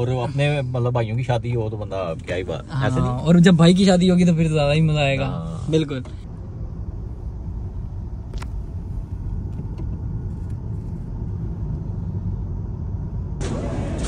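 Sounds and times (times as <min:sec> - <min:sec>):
road and engine rumble: 0:00.0 - 0:14.0.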